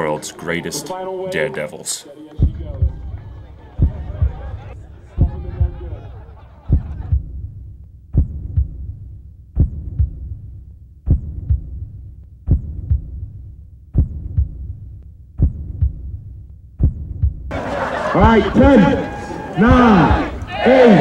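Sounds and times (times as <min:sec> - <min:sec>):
heartbeat double thumps: 0:02.4 - 0:06.0, 0:06.6 - 0:17.5.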